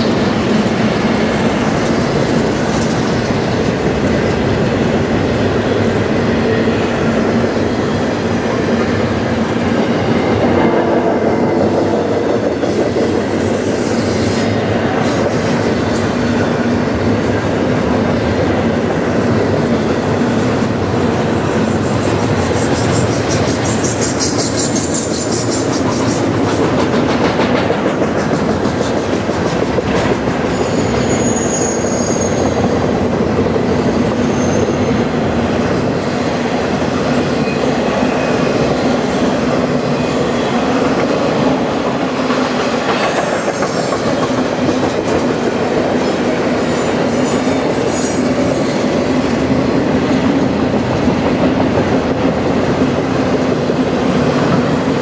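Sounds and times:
train wheels clicking over rail joints: 10.4s - 34.8s, 40.7s - 49.4s
high-pitched wheel squeals: 30.5s - 32.6s, 34.0s - 35.2s.

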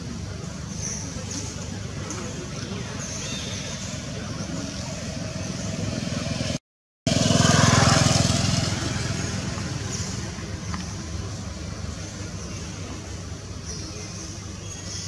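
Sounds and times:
traffic rumble: 0.0s - 15.0s
vehicle passing close: 4.7s - 10.8s.

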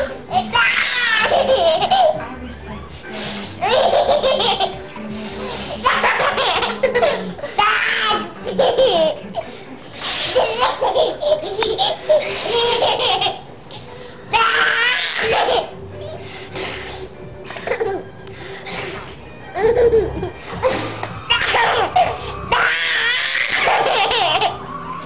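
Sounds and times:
baby belly-laughing: 0.0s - 2.2s, 3.6s - 4.8s, 10.3s - 16.2s, 19.6s - 24.6s.

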